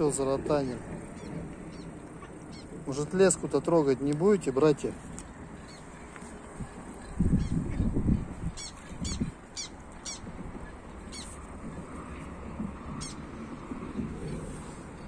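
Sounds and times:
small birds chirping: 0.6s - 3.3s, 4.1s - 12.3s.

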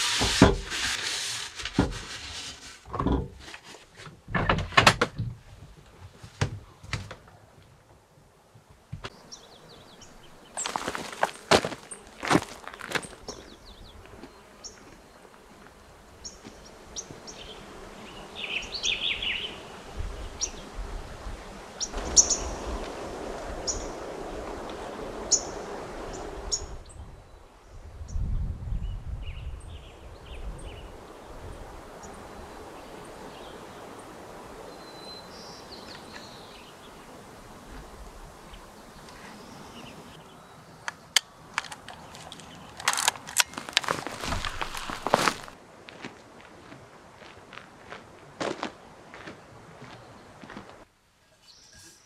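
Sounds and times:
small birds chirping: 9.1s - 20.7s, 21.8s - 22.6s, 28.8s - 37.2s, 38.4s - 42.9s
sharp clicks: 40.8s - 43.9s.

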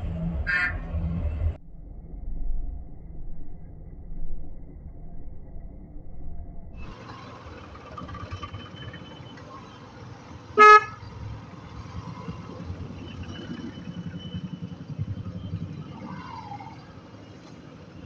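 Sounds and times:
horn honk: 0.4s - 1.0s, 10.5s - 11.1s
motorcycle engine rumble: 6.8s - 18.0s.

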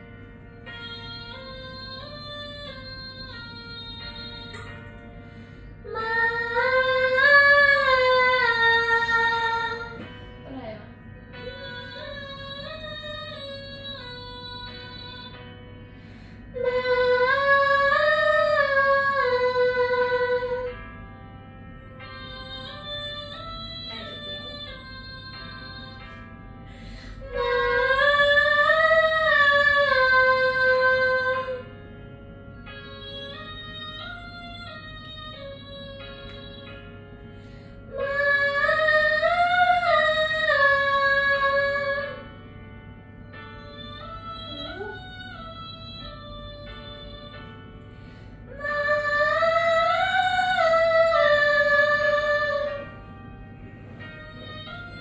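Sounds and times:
faint instrumental accompaniment: 0.0s - 55.0s
women singing vocal warm-up: 5.9s - 10.8s, 16.5s - 20.7s, 27.2s - 31.6s, 37.9s - 42.2s, 48.5s - 52.9s.

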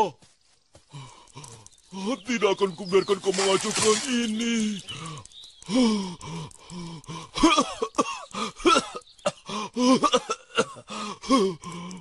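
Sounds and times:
cartoon character coughing and gasping: 7.4s - 9.0s, 9.9s - 10.8s.

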